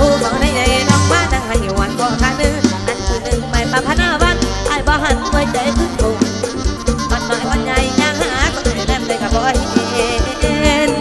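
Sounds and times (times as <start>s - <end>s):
fast steady drum beat: 0.0s - 11.0s
wavering melody line: 0.0s - 11.0s.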